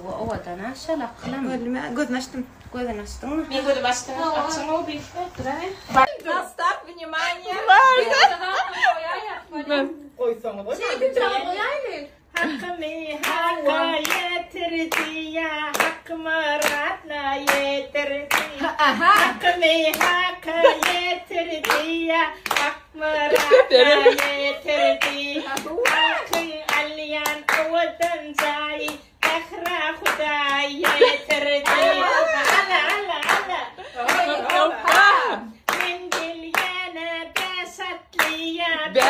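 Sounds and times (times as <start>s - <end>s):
woman singing: 10.9s - 39.0s
rhythmic hand-clapping: 12.3s - 39.0s.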